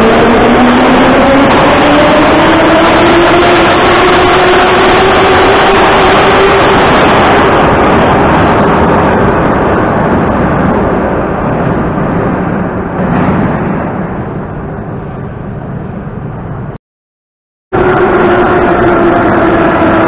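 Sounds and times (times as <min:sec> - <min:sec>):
train motors whining: 0:17.8 - 0:20.0.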